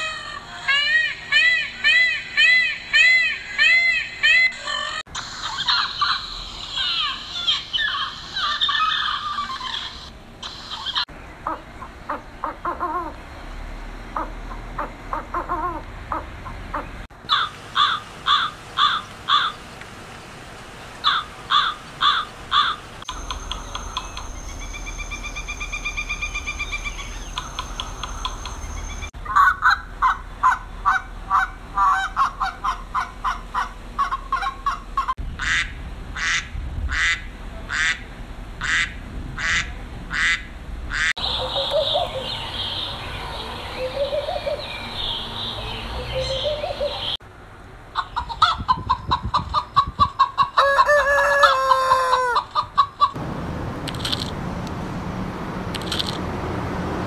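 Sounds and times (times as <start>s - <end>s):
chickens clucking: 14.1s - 17.1s, 29.3s - 35.6s, 48.0s - 53.2s
duck quacking: 38.6s - 41.1s
rooster crowing: 50.6s - 52.5s.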